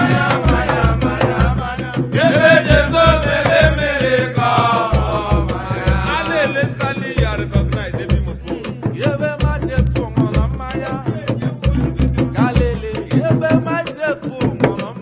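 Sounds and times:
repeating drum beat: 0.0 - 15.0.

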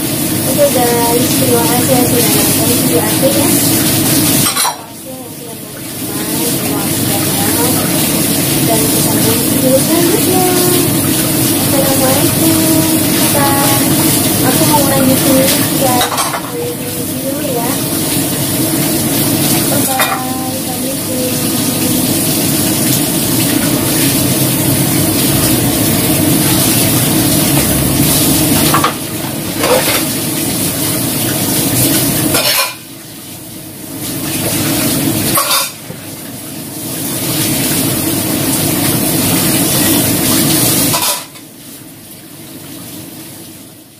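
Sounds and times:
tap water running onto dishes: 0.0 - 43.9.

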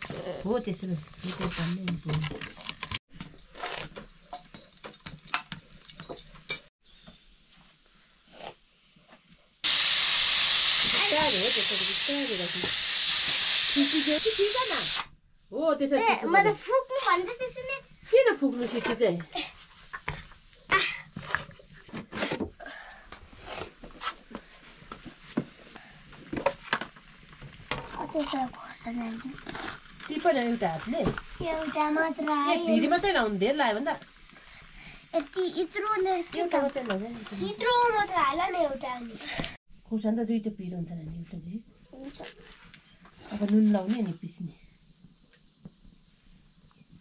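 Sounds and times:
utensils clinking on cookware: 2.4 - 6.7
faint hiss: 6.9 - 21.9, 22.6 - 47.0.

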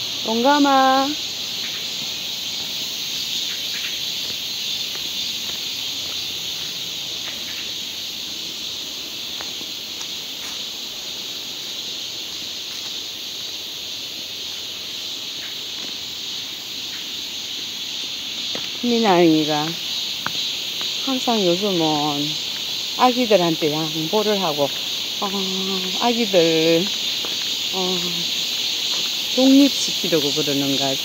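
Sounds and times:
insects droning: 0.0 - 31.0.

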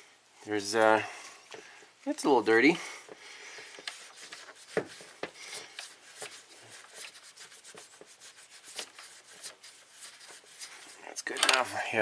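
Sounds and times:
cloth towel rubbing metal: 3.7 - 11.0.

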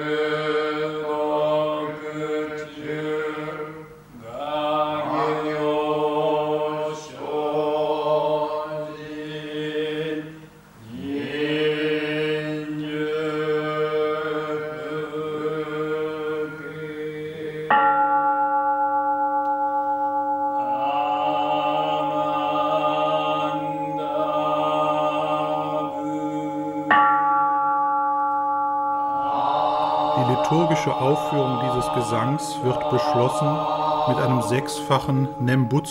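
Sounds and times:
men chanting in unison: 0.0 - 17.8, 20.6 - 26.9, 29.2 - 35.9
bowl bell ringing: 17.7 - 21.2, 26.6 - 35.9.

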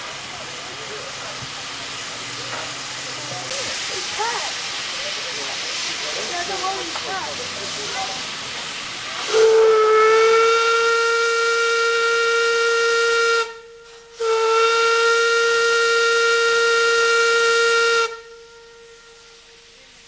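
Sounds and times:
faint hiss: 0.0 - 20.0
steam whistle blasts: 9.2 - 20.0.

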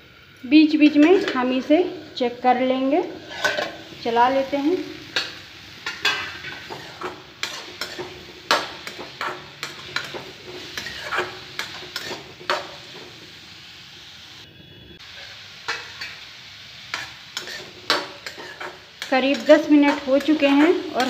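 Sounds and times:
vegetables sizzling: 0.0 - 21.0
metal spatula scraping pan: 0.8 - 1.7, 3.1 - 3.8, 5.2 - 12.8, 16.9 - 21.0.

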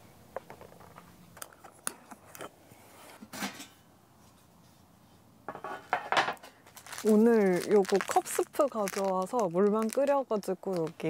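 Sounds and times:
tableware clicking and knocking: 5.5 - 6.6.

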